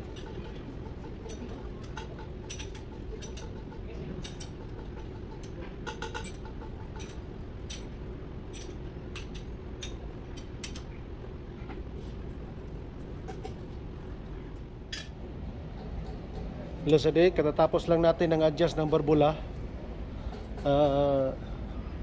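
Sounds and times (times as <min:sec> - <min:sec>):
metal tools clicking on engine: 0:00.0 - 0:11.0
low background hum: 0:00.0 - 0:22.0.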